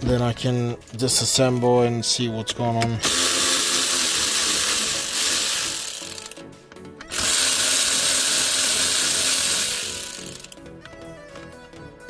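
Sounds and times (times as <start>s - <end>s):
cordless ratchet running: 3.0s - 6.4s, 7.1s - 10.6s.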